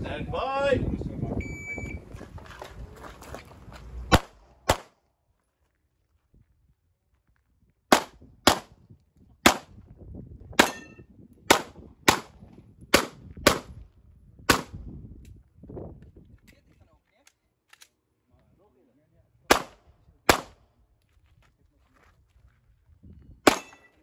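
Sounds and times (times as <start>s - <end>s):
pistol shots: 4.1s - 5.0s, 7.9s - 8.7s, 9.4s - 9.7s, 10.6s - 10.9s, 11.5s - 13.7s, 14.5s - 14.8s, 19.5s - 20.6s, 23.4s - 23.9s.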